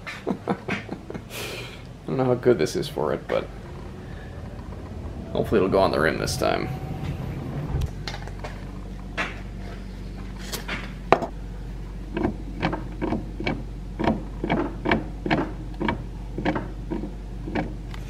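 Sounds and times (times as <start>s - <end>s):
steering linkage clunking: 12.1s - 18.0s.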